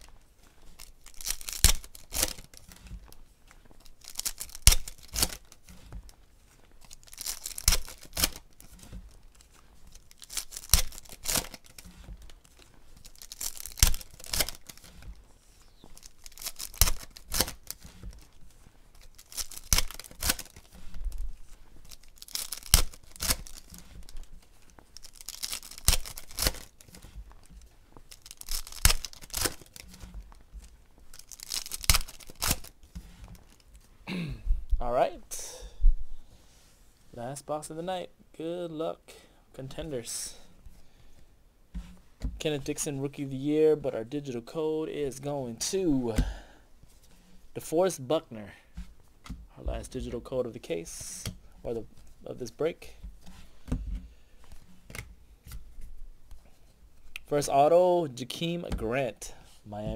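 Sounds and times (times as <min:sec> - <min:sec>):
foil packs tearing and crinkling: 0:00.7 - 0:02.9, 0:03.8 - 0:05.9, 0:06.8 - 0:30.3, 0:31.1 - 0:33.6.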